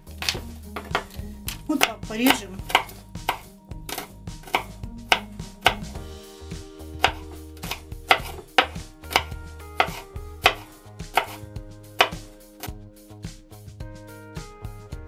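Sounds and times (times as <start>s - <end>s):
knife chopping on cutting board: 1.8s - 6.0s, 7.0s - 11.4s, 12.0s - 12.8s.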